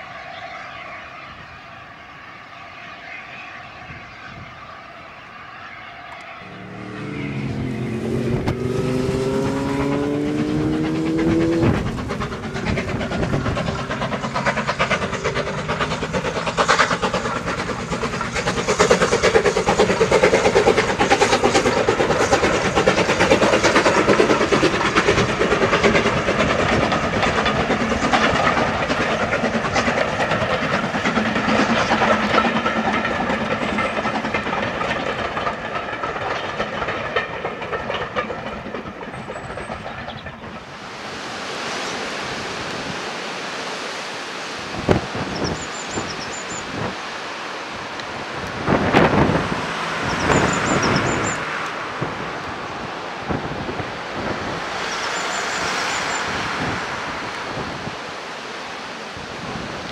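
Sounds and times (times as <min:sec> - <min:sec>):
rising tones: 0:05.7 - 0:16.1, 0:53.8 - 0:59.1
coach wheels clattering over rail joints: 0:06.4 - 0:41.1, 0:48.0 - 0:59.9
steam locomotive exhaust chuffing: 0:06.4 - 0:43.1, 0:47.8 - 0:59.9.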